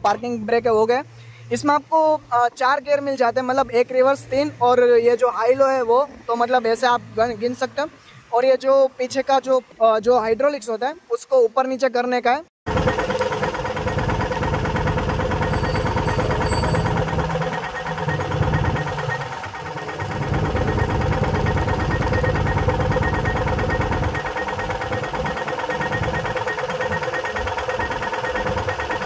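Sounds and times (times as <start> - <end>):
hydraulic lift working: 12.7 - 29.0
tractor diesel engine idling: 12.7 - 29.0.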